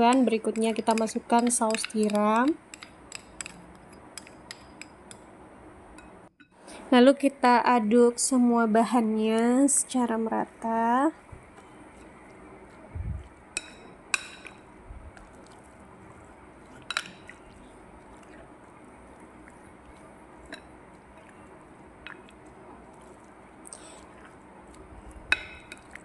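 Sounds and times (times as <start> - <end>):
soft squelching of stirred paste: 0.0 - 5.2, 11.4 - 26.0.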